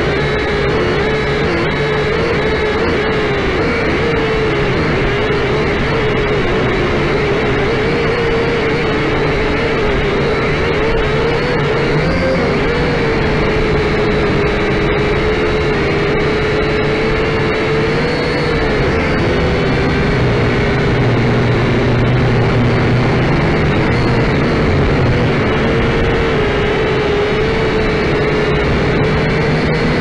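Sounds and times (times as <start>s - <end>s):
drone propellers whining: 0.0s - 30.0s
low hum: 0.0s - 30.0s.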